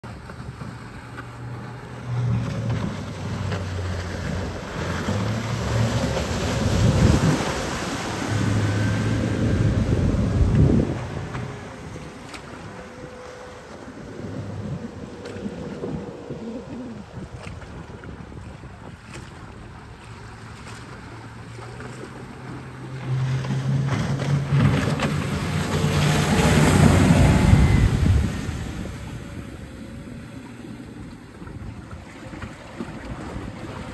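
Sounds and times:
outboard motor running: 0.0 - 33.9
rushing water: 0.0 - 33.9
wind on the microphone: 4.3 - 20.1, 24.6 - 33.9.

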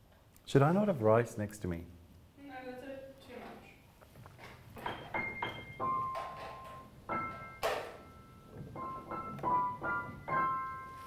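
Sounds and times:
piano playing high notes: 4.8 - 11.0.

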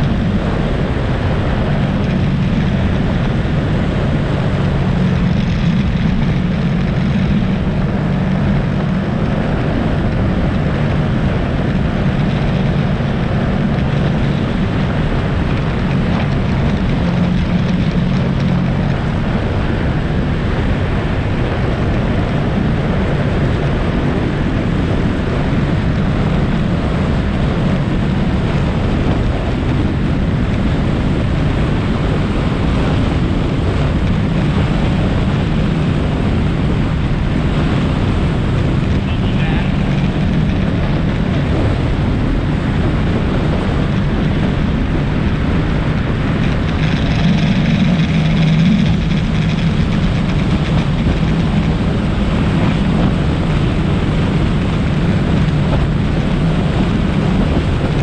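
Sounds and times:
atv engine droning: 0.0 - 58.0
wind buffeting microphone: 0.0 - 58.0.

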